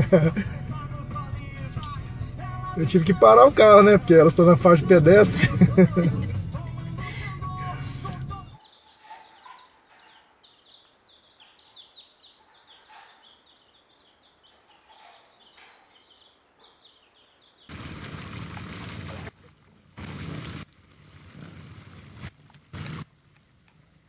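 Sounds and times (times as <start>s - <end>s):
music: 0.0s - 8.6s
baby chicks peeping: 5.3s - 18.3s.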